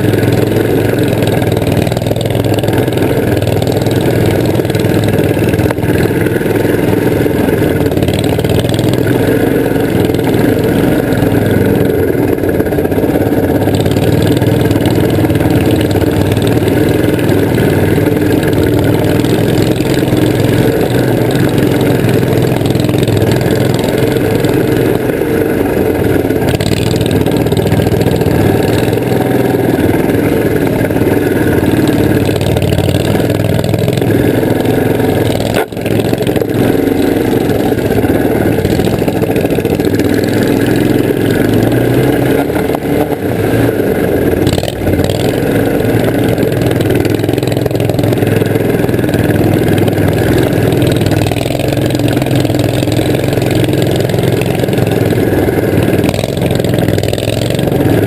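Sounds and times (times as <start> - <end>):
vehicle engine running: 0.0 - 58.0.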